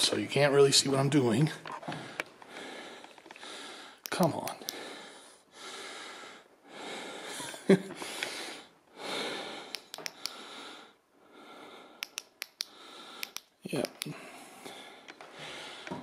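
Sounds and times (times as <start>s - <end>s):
person breathing heavily: 1.8s - 13.4s, 14.1s - 16.0s
sharp clicks: 9.7s - 10.4s, 12.0s - 14.1s.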